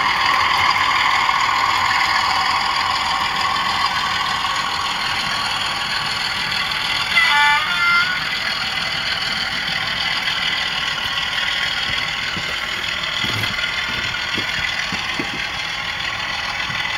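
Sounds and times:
model locomotive engine idling: 0.0 - 16.9
two-note horn: 7.2 - 8.3
soft knocks: 11.9 - 15.5.

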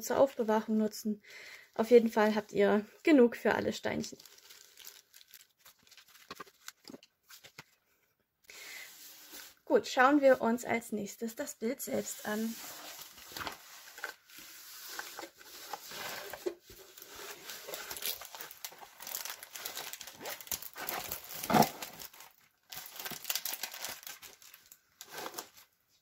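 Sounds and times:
plastic film crinkling: 3.8 - 7.6, 12.0 - 25.7.

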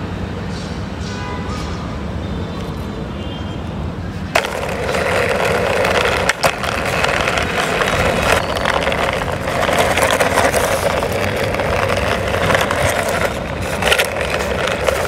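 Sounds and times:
toy car wheels rolling on concrete: 4.3 - 15.0.

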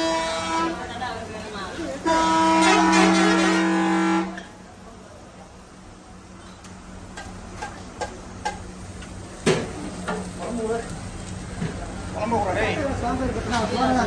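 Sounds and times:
multi-tone vehicle horn blast: 0.0 - 1.0, 2.0 - 4.5
griddle clicks: 6.6 - 10.3.

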